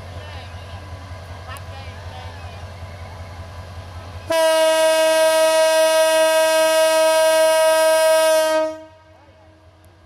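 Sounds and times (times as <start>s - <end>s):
locomotive horn blast: 4.3s - 9.2s.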